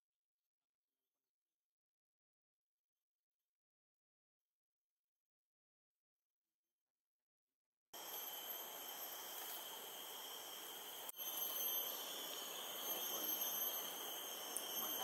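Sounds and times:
faint hiss: 8.0 - 15.0
insects buzzing: 8.0 - 15.0.

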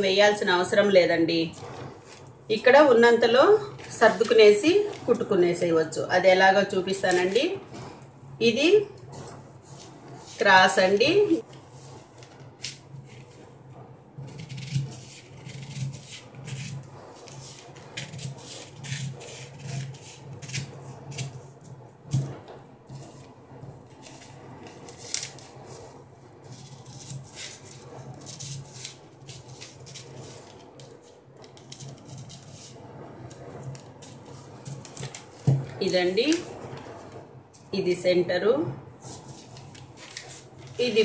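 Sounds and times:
paper handling: 11.4 - 13.4, 24.0 - 25.9, 33.3 - 37.1, 39.0 - 41.0
scissors snipping paper: 14.3 - 22.2, 23.9 - 25.8, 26.5 - 36.5.

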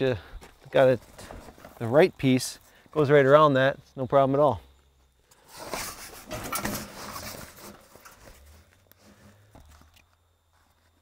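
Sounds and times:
canvas rustling and crinkling: 5.5 - 11.0.

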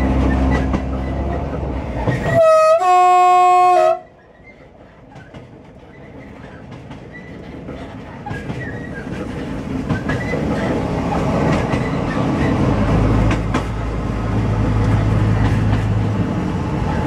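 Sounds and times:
diesel railcar running: 0.0 - 17.0
wheels rumbling on rails: 0.0 - 17.0
train horn: 2.2 - 4.2.

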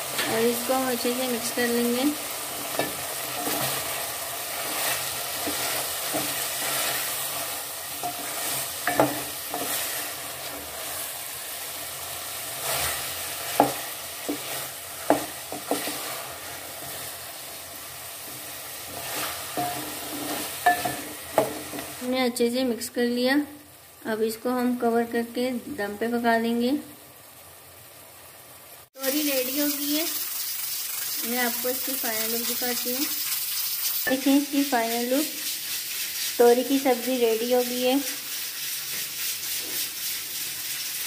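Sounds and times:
food sizzling in a pot: 0.0 - 41.0
wooden spoon knocking on pot: 15.1 - 16.0.

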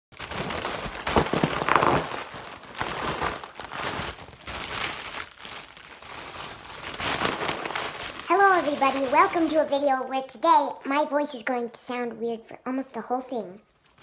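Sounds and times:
crinkling and rustling: 0.1 - 10.0, 13.7 - 14.0.

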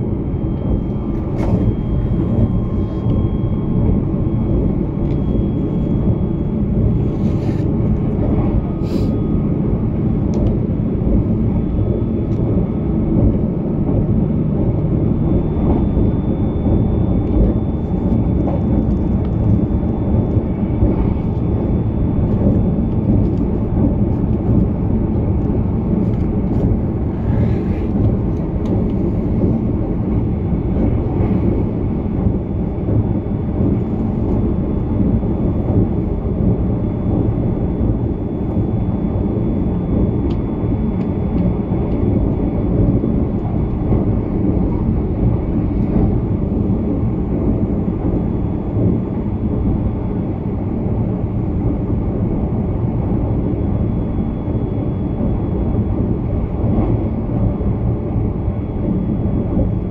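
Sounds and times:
train wheels rumbling on rails: 0.0 - 49.4
faint high whine: 0.0 - 59.9.

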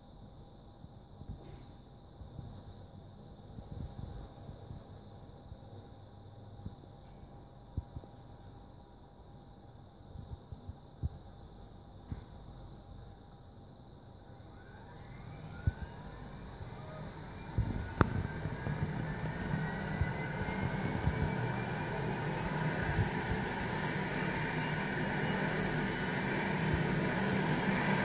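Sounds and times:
helicopter turbine whine: 14.4 - 28.0.

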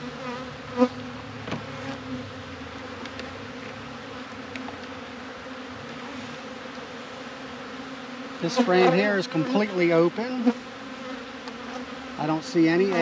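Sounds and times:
honey bees buzzing: 0.0 - 13.0.

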